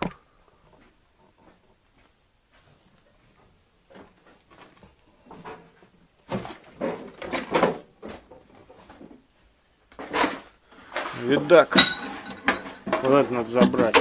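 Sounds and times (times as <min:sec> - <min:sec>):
junk knocking and clattering: 0:05.3 - 0:09.2, 0:11.4 - 0:14.0.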